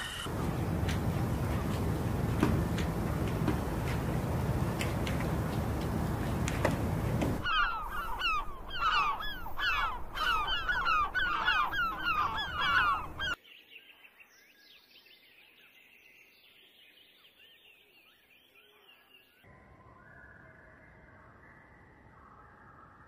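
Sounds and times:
flock of birds calling: 0:00.2 - 0:13.4
small birds twittering: 0:00.3 - 0:19.4.

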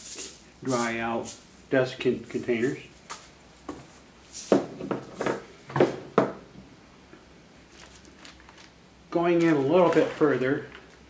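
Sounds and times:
faint handling sounds: 0:07.6 - 0:11.0.

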